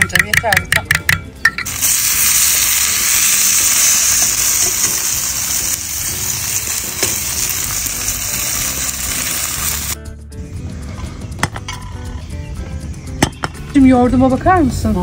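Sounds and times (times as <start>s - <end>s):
dumplings sizzling in a pan: 1.7s - 10.0s.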